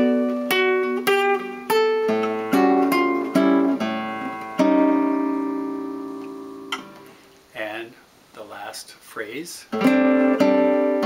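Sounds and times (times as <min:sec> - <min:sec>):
nylon-string guitar chords: 0:00.0 - 0:07.4, 0:09.7 - 0:11.0.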